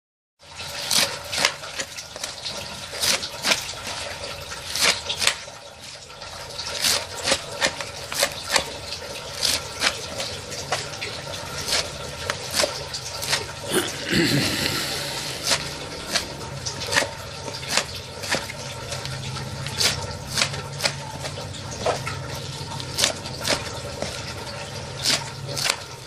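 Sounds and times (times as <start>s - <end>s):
knife chopping greens on metal tray: 0.6s - 5.5s, 6.6s - 13.5s, 15.3s - 26.0s.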